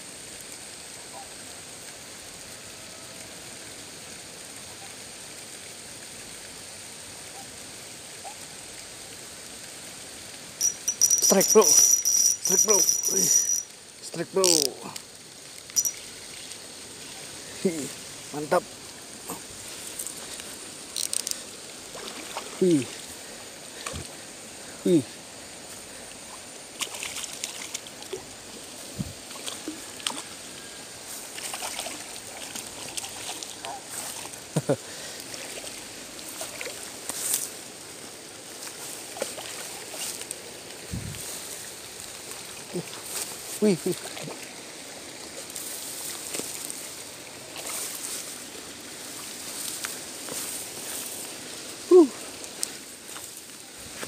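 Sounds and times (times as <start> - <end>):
light rain on water: 0.0 - 54.0
fishing reel drag whirring: 10.6 - 13.8, 15.6 - 16.1, 21.0 - 21.5.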